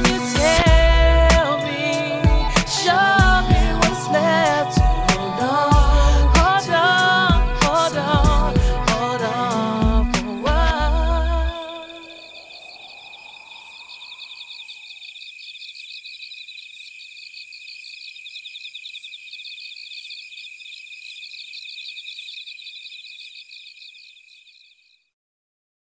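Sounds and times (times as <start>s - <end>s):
music: 0.0s - 11.5s
insects chirping: 0.0s - 25.1s.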